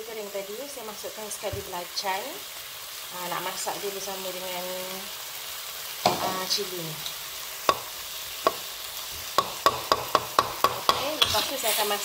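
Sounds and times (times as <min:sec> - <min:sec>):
paste sizzling in oil: 0:00.0 - 0:12.0
metal spatula scraping a wok: 0:09.5 - 0:12.0.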